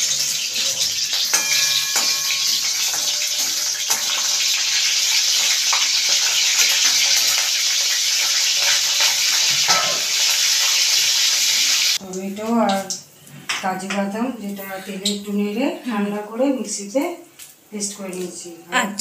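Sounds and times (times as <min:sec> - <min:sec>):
spices sizzling in hot oil: 0:00.0 - 0:13.3
metal spatula scraping and tapping: 0:01.0 - 0:10.0.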